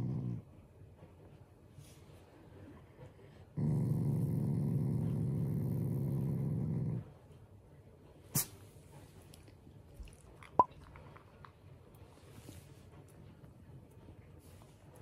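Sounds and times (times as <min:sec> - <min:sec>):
dog growling: 0:00.0 - 0:00.5, 0:03.5 - 0:07.2.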